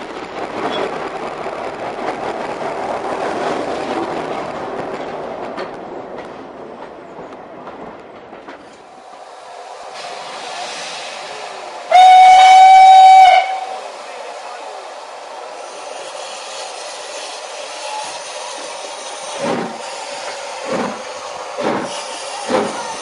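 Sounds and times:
steam hiss: 8.9s - 23.0s
steam locomotive whistle blast: 11.9s - 13.8s
train coaches clattering over joints: 16.0s - 23.0s.

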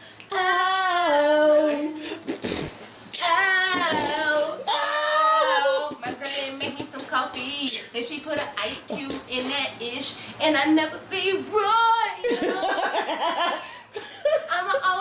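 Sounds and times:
woman singing unaccompanied: 0.3s - 2.0s, 3.2s - 12.4s.

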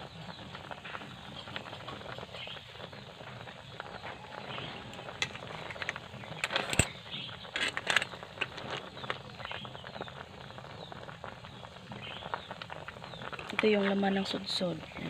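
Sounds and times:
broth bubbling: 0.0s - 15.0s
ladle stirring shellfish: 3.9s - 11.2s, 12.2s - 14.3s
shells clacking against metal pot: 5.1s - 9.2s.

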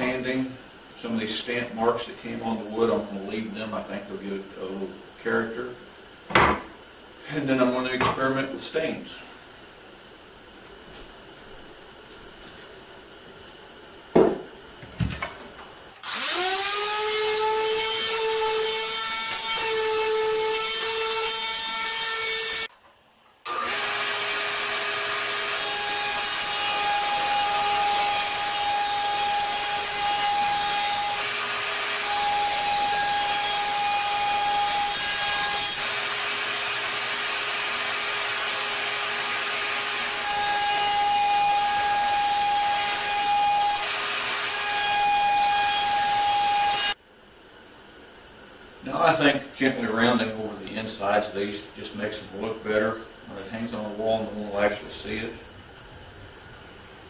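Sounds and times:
knocks: 14.2s - 15.2s
power tool motor running: 16.0s - 17.8s, 23.5s - 25.6s
router cutting wood: 16.0s - 22.7s, 23.5s - 47.0s.

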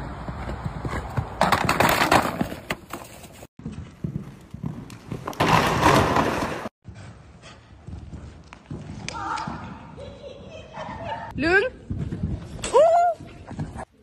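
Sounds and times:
horse hoofbeats on arena footing: 0.0s - 13.9s.

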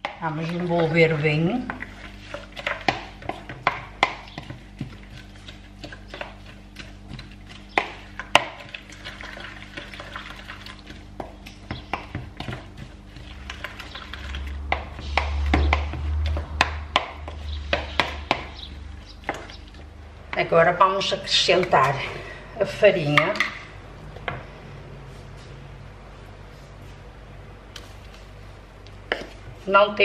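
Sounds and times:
spatula stirring wet mix: 0.0s - 23.5s
spatula knocking plastic bowl: 2.6s - 8.7s, 11.2s - 13.7s, 14.6s - 19.5s.

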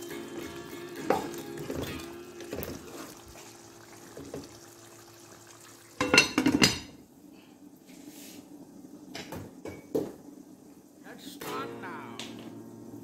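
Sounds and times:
glass lid clattering on pot: 6.0s - 7.0s.

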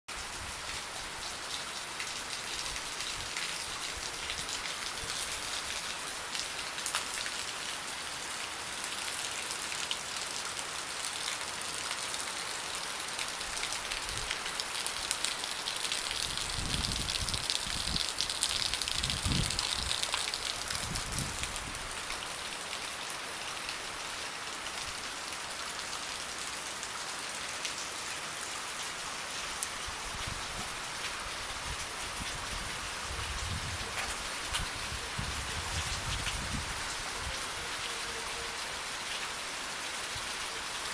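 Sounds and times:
heavy rain falling: 0.1s - 40.9s
water splashing onto concrete: 13.4s - 22.7s.

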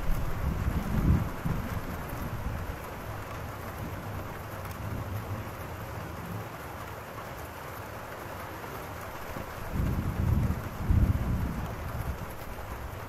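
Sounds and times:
thunder rumble: 0.0s - 3.0s, 9.6s - 13.0s
rain falling: 0.0s - 13.0s.

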